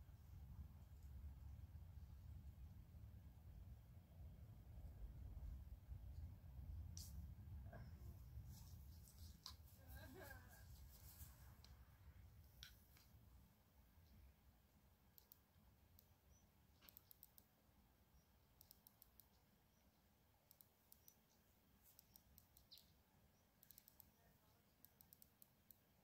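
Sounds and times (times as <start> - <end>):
soft high clicks: 15.1 - 17.6, 18.2 - 25.9.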